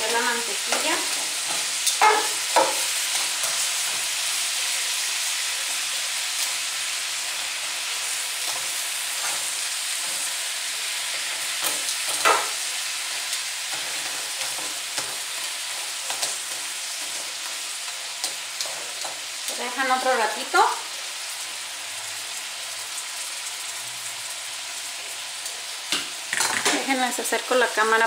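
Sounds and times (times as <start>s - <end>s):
crab legs sizzling in butter: 0.0s - 28.0s
knock on pan: 25.9s - 26.8s.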